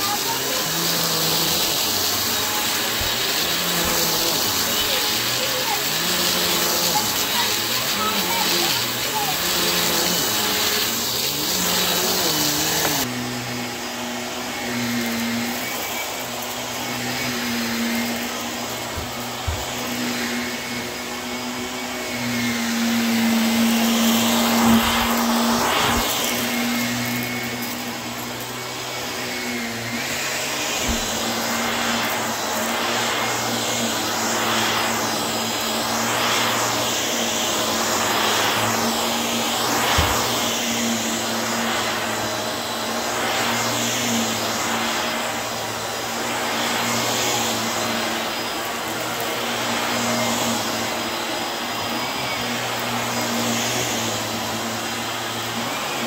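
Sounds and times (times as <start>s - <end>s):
vacuum cleaner running on rug: 0.0s - 56.0s.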